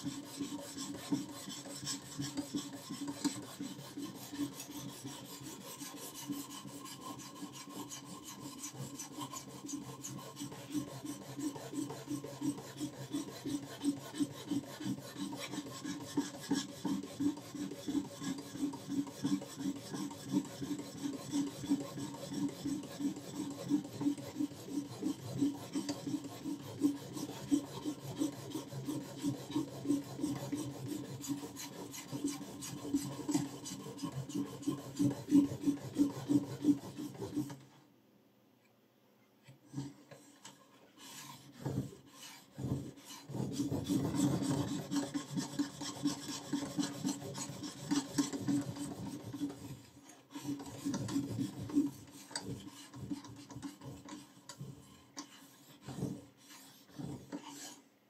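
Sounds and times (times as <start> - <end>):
sharpening stone rasping on knife: 41.0 - 49.7, 55.2 - 57.8.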